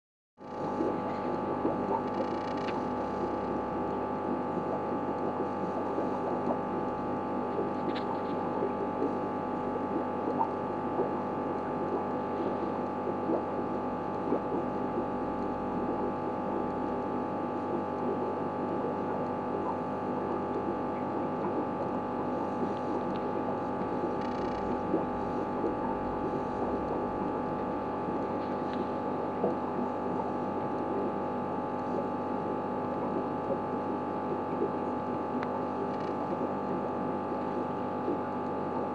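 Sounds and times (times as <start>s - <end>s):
electrical hum: 0.4s - 38.9s
faint ticks: 2.1s - 2.8s, 35.4s - 36.4s.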